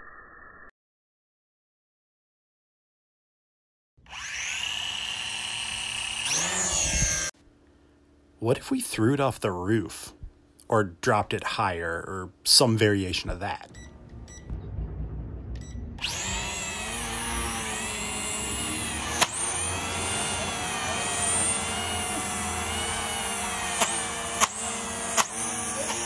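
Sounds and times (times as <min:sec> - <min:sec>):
drone motors whining: 0:04.1 - 0:07.4, 0:15.5 - 0:26.0.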